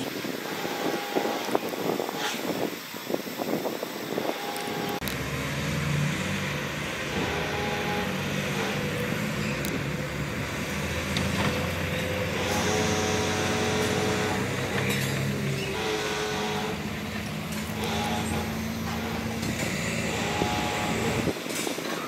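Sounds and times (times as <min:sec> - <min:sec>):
heavy diesel engine running: 0:04.1 - 0:21.5.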